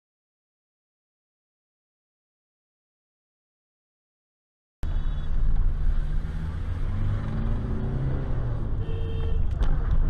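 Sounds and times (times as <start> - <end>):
car engine and road rumble: 4.8 - 10.0.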